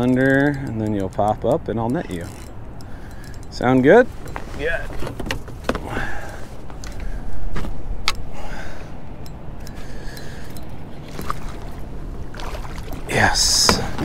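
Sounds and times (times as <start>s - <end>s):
rough water rumbling: 0.0s - 14.0s
wind: 0.0s - 14.0s
fishing gear knocking on metal boat: 12.8s - 14.0s.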